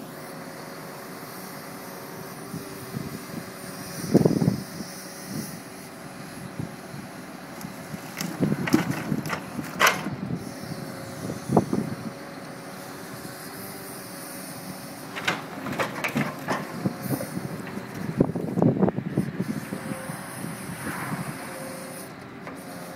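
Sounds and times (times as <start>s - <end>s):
hydraulic crane humming: 5.2s - 22.9s
logs knocking and clattering: 8.0s - 10.2s, 15.1s - 18.0s.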